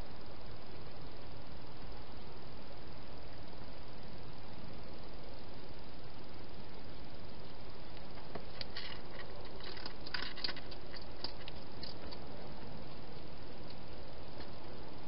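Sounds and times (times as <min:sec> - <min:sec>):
steady hiss: 0:00.0 - 0:15.0
hedgehog crunching and smacking: 0:08.6 - 0:13.3.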